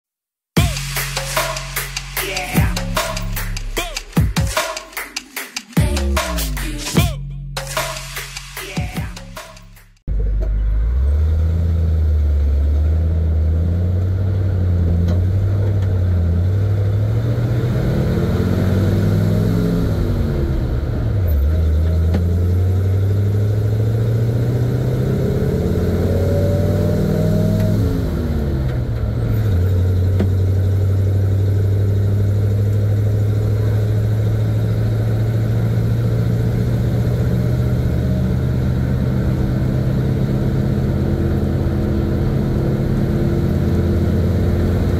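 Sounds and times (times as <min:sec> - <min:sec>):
truck engine accelerating through gears: 0:09.7 - 0:44.9.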